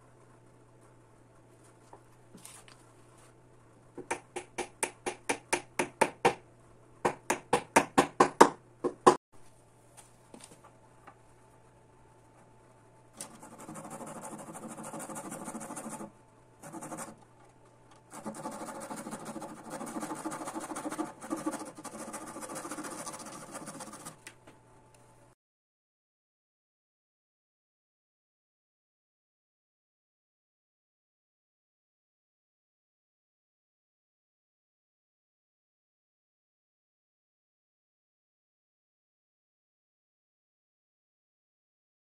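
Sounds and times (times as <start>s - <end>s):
hammer tapping: 4.0s - 6.4s, 7.0s - 9.2s
saw rasping back and forth: 13.2s - 17.2s, 18.1s - 24.2s.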